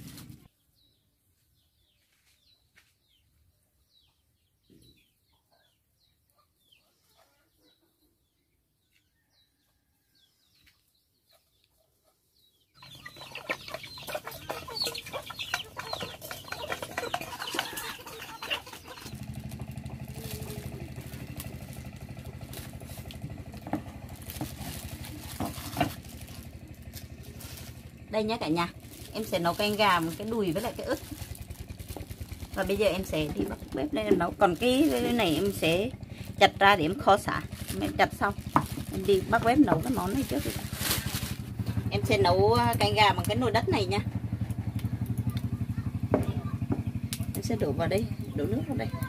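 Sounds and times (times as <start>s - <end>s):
small birds chirping: 0.2s - 49.0s
chickens clucking: 10.5s - 49.0s.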